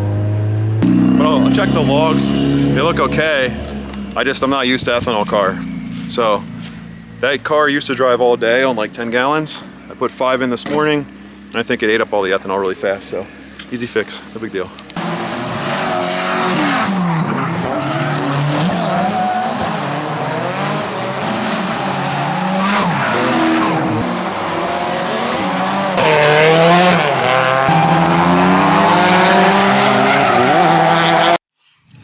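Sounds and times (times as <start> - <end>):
car engine revving hard: 0.0 - 4.0, 15.0 - 31.4
tires squealing on pavement: 15.0 - 31.4.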